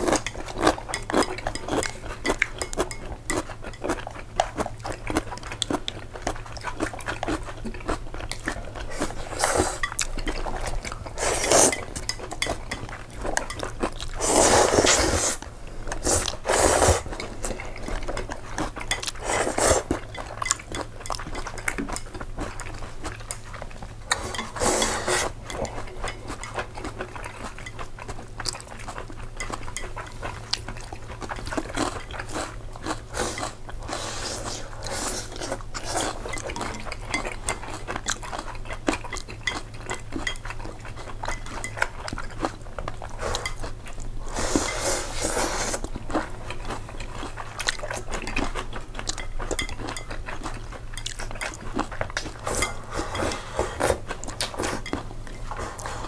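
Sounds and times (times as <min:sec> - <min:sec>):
person chewing and slurping: 0:00.0 - 0:56.0
cutlery clinking on dish: 0:24.1 - 0:26.6.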